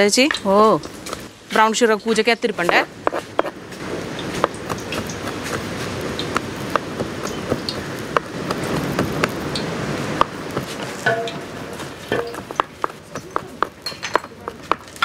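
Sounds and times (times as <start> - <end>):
knife chopping on wooden board: 2.6 - 3.6, 4.4 - 9.4, 12.2 - 13.8.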